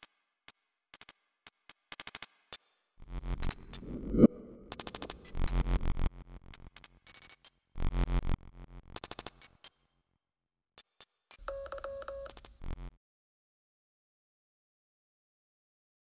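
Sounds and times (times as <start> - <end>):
glitchy electronic music: 3.0 - 6.8, 7.8 - 9.2.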